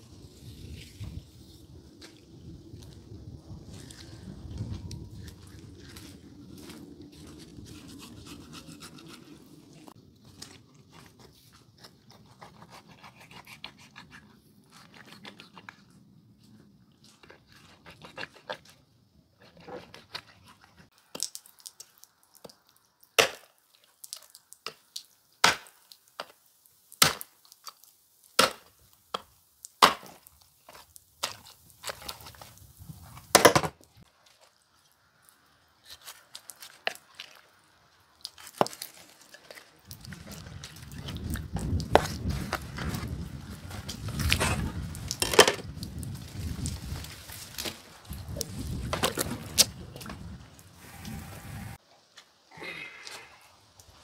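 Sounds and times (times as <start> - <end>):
scraping and rubbing: 6.8 - 16.0.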